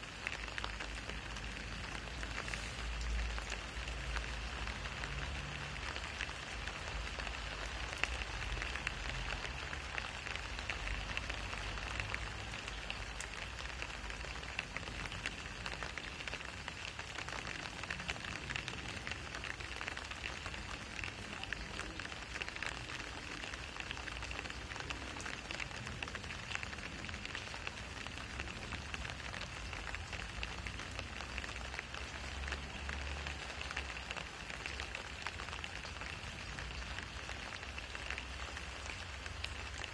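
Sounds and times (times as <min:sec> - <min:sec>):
rain on wet asphalt: 0:00.0 - 0:39.9.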